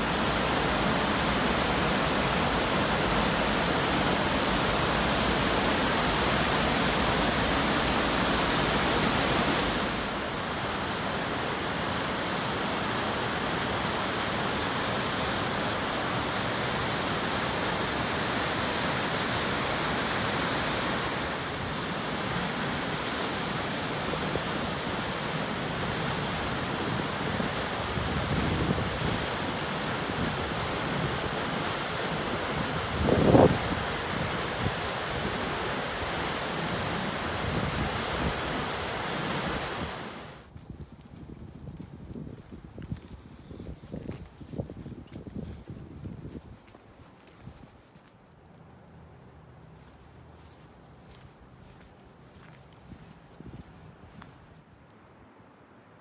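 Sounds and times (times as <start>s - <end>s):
waterfall roar and rushing whitewater: 0.0s - 40.5s.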